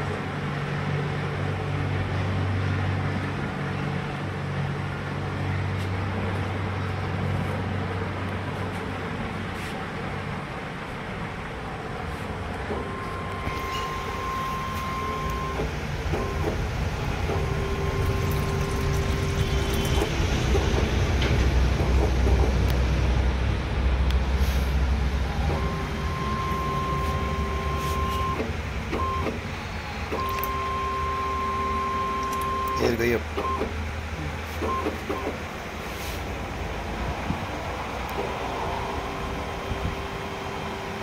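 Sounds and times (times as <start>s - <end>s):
pump motors whining: 12.5s - 22.7s, 25.1s - 35.8s, 37.8s - 41.0s.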